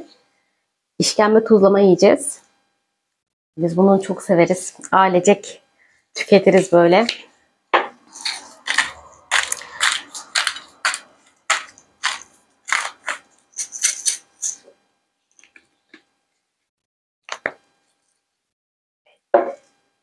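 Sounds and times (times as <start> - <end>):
spice grinder crunching: 8.0 - 14.6.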